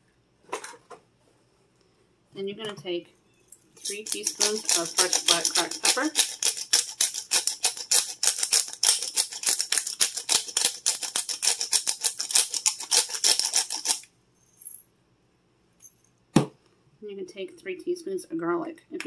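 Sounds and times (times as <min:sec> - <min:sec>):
pepper grinder gritty clicks: 0:03.8 - 0:14.0.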